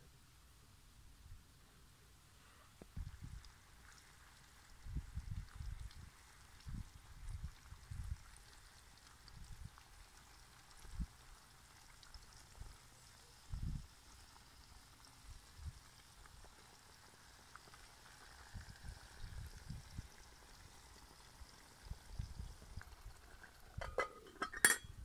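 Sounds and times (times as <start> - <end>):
food sizzling and bubbling in pot: 2.2 - 25.0
metal lid clinking onto pot: 23.8 - 25.0.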